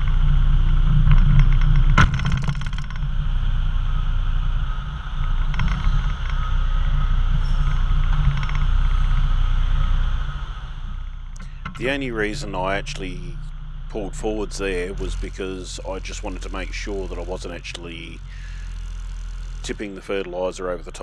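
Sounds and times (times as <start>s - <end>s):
sharp clatter: 0.0s - 9.9s
diesel truck engine running: 0.0s - 21.0s.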